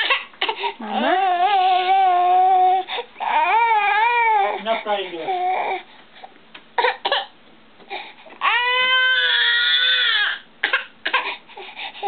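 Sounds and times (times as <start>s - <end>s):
baby crying: 0.0s - 5.8s, 8.4s - 11.4s.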